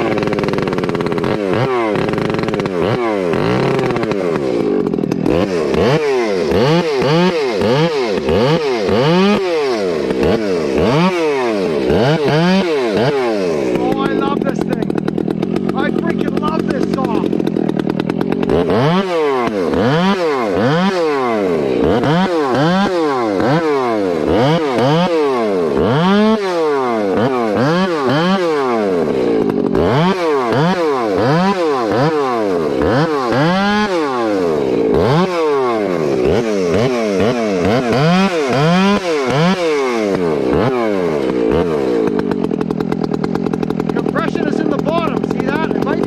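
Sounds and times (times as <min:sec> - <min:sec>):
chainsaw revving and idling: 0:00.0 - 0:46.0.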